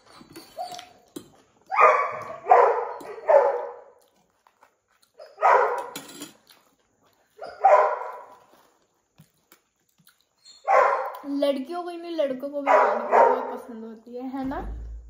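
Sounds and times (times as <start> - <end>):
dog barking: 1.7 - 4.0, 5.2 - 6.0, 7.4 - 8.4, 10.6 - 11.2, 12.6 - 13.7.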